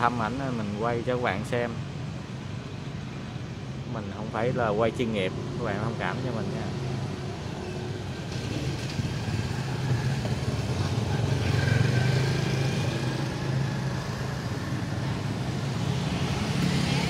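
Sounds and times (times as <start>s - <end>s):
road traffic engine hum: 0.0s - 17.0s
vehicle passing: 4.4s - 17.0s.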